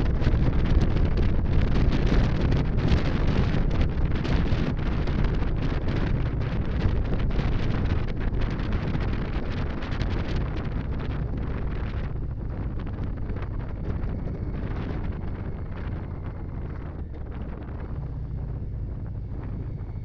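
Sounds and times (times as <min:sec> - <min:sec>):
motorcycle engine running: 0:00.0 - 0:20.0
wind buffeting microphone: 0:00.0 - 0:20.0.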